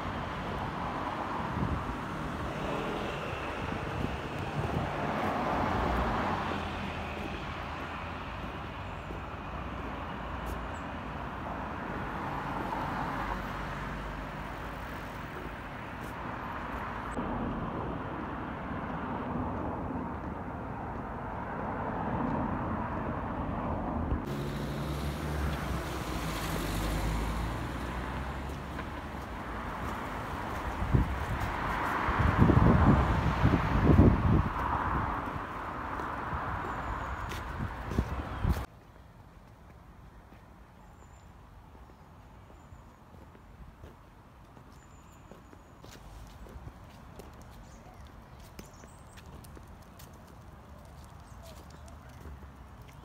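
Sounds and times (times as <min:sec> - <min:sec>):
cars passing: 0:00.0 - 0:38.7
low traffic rumble: 0:00.0 - 0:44.8.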